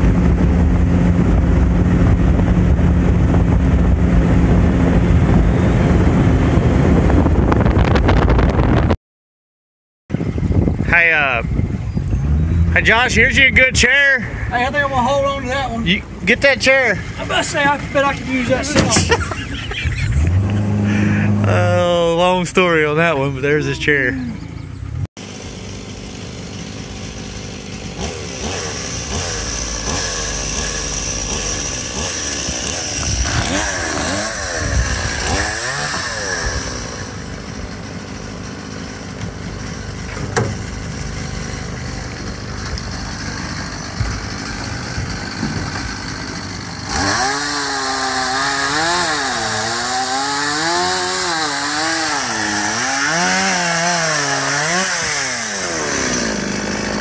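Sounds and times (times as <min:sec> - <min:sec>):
chainsaw revving and cutting: 0:18.2 - 0:21.4, 0:25.2 - 0:40.0, 0:40.7 - 0:57.0.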